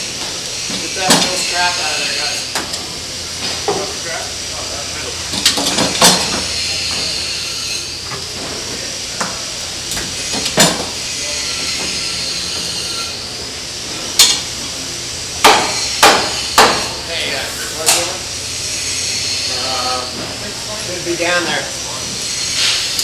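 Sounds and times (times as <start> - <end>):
hammer striking wood: 15.4 - 17.0.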